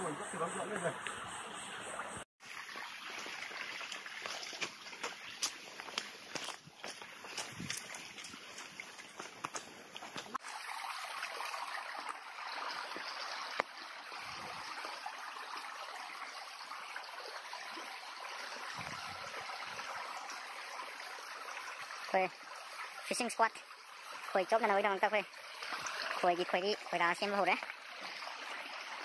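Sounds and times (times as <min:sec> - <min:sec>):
stream running over rocks: 0:00.0 - 0:29.0
footsteps on dry leaves: 0:03.0 - 0:10.4.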